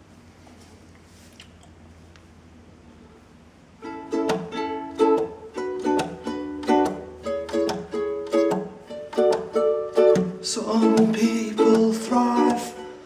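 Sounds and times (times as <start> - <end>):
ukulele strumming chords: 3.8 - 13.0.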